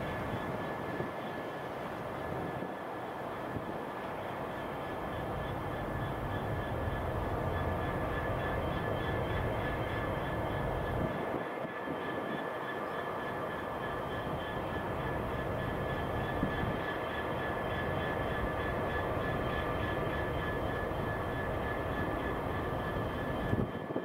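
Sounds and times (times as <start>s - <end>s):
diesel locomotive engine drone: 0.0s - 24.0s.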